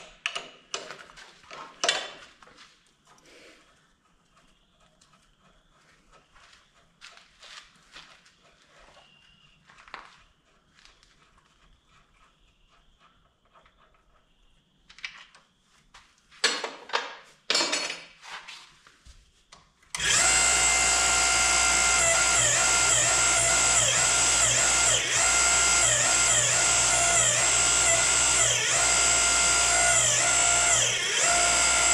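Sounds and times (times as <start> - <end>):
hydraulic power unit whining hum: 19.9 - 31.9.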